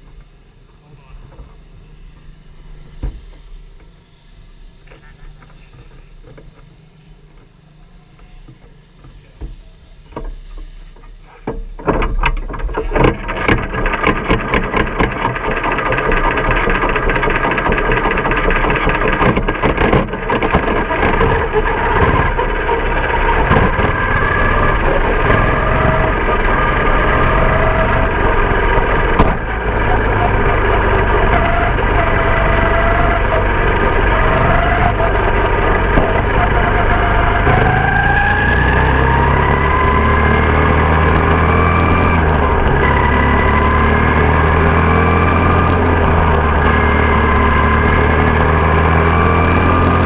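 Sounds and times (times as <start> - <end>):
rattling: 11.8 - 39.9
race car engine: 11.9 - 50.0.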